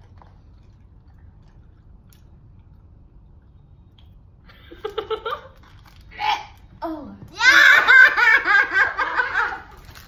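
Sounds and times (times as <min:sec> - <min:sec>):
quiet chewing: 0:00.0 - 0:04.5
low room hum: 0:00.0 - 0:10.0
laughter and voices: 0:07.4 - 0:09.7.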